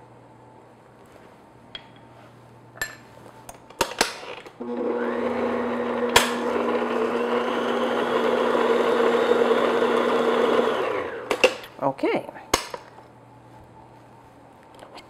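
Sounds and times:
stand mixer motor humming: 0:04.6 - 0:11.4.

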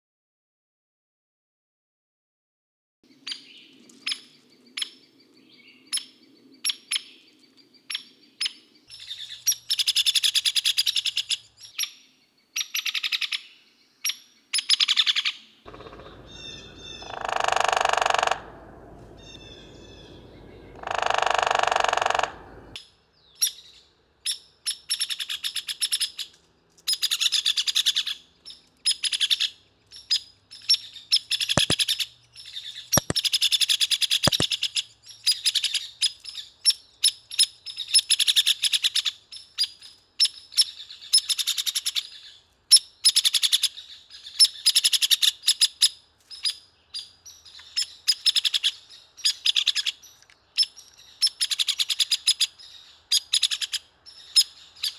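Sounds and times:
woodpecker sharp calls: 0:07.9 - 0:12.0, 0:12.6 - 0:54.9
woodpecker rattling whinny: 0:15.7 - 0:22.8, 0:34.2 - 0:34.6.

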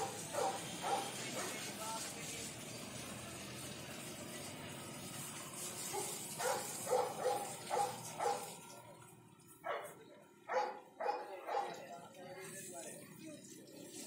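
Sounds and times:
dog barking: 0:00.0 - 0:01.7, 0:05.8 - 0:08.6, 0:09.6 - 0:11.9
hose water splashing: 0:00.0 - 0:14.0.

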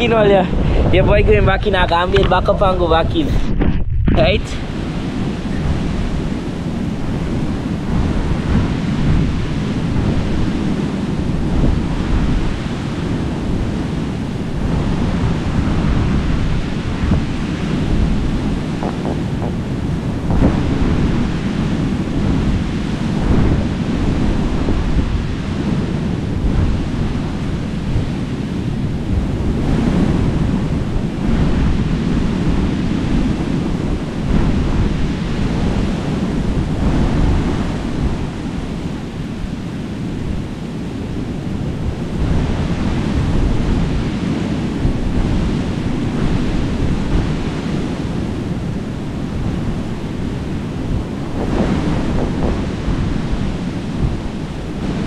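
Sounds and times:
ocean surf breaking: 0:00.0 - 0:55.0
wind buffeting microphone: 0:00.0 - 0:55.0.

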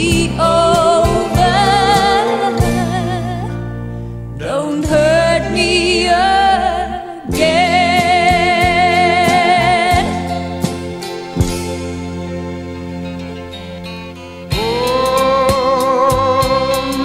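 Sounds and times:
pop ballad singing with band: 0:00.0 - 0:03.7, 0:04.4 - 0:10.8, 0:14.5 - 0:17.0.

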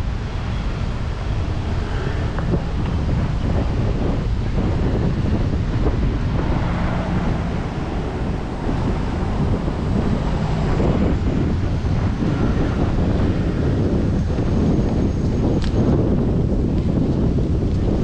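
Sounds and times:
wind noise on microphone: 0:00.0 - 0:18.0
surf washing on beach: 0:00.8 - 0:11.7.

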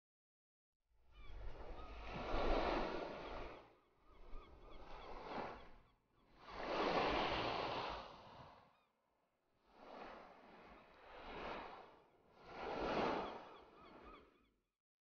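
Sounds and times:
ocean waves washing onto shore: 0:01.4 - 0:03.7, 0:06.4 - 0:08.6, 0:09.7 - 0:14.2.

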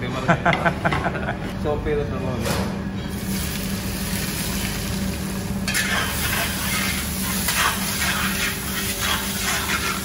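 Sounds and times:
steady low hum: 0:00.0 - 0:10.0
onions sizzling in hot oil: 0:03.1 - 0:10.0
metal spatula scraping pot: 0:05.7 - 0:10.0.

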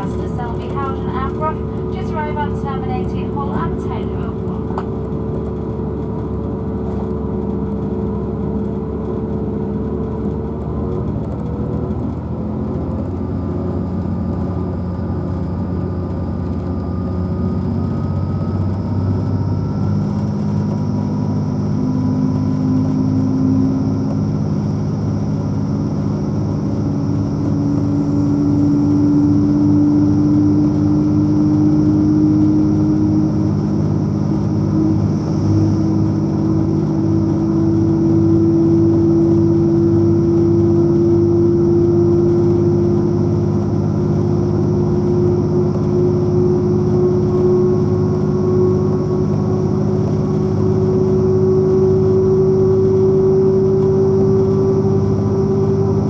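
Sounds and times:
train diesel engine drone: 0:00.0 - 0:56.0.

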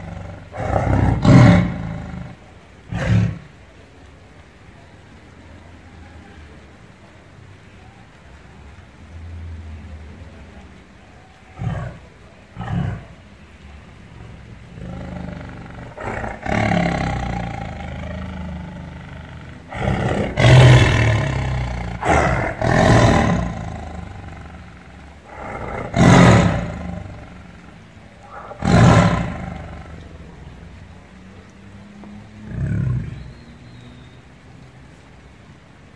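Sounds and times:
tiger growling and roaring: 0:00.0 - 0:03.6, 0:11.4 - 0:33.5.

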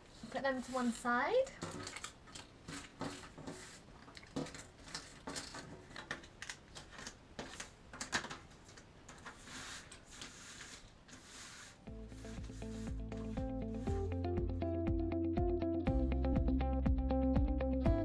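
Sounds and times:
hands sliding through puzzle pieces: 0:02.6 - 0:05.7, 0:09.2 - 0:14.1.

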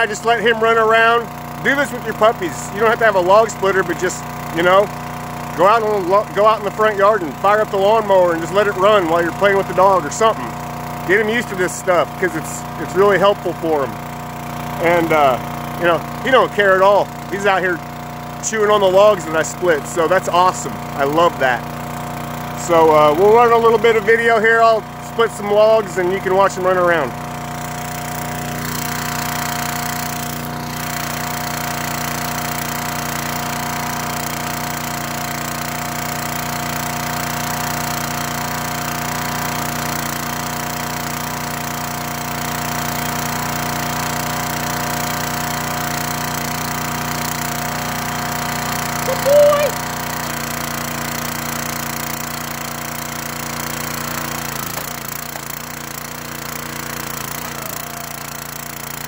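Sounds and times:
small gasoline engine running: 0:00.0 - 0:59.0
short high squeak: 0:49.0 - 0:49.8.

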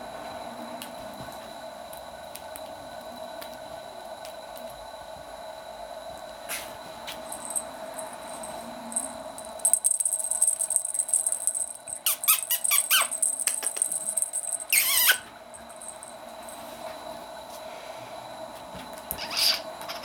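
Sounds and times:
kitten squeaking: 0:10.4 - 0:15.3.

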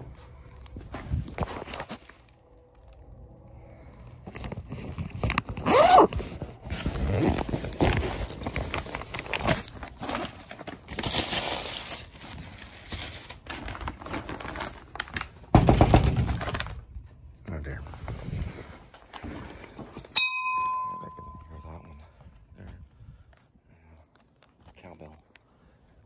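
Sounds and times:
bag being rummaged: 0:00.5 - 0:02.4, 0:04.2 - 0:16.8
paper wrapper crinkling: 0:04.2 - 0:16.8.

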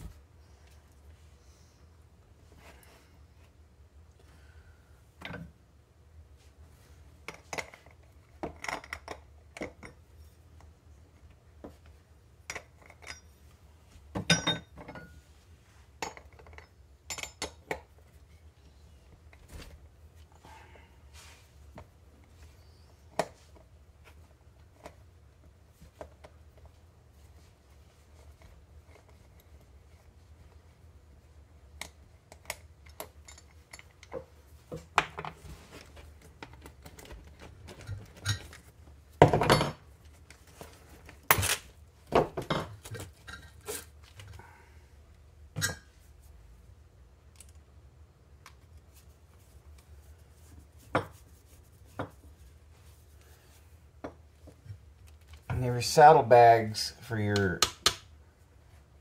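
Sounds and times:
low steady hum: 0:00.0 - 0:59.0
tools and parts clattering: 0:14.2 - 0:15.2, 0:36.4 - 0:39.9, 0:40.5 - 0:44.4.

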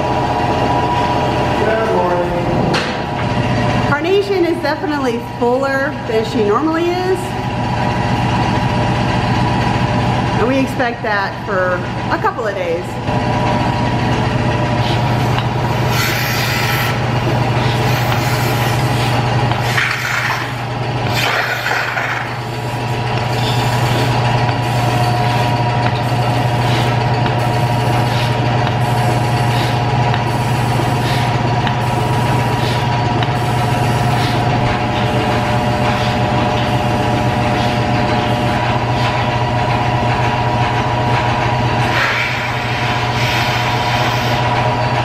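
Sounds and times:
vacuum pump humming: 0:00.0 - 0:45.0
air hissing through milking cluster: 0:14.7 - 0:39.6, 0:41.8 - 0:45.0
pulsing hiss: 0:15.8 - 0:17.0, 0:17.6 - 0:20.4.

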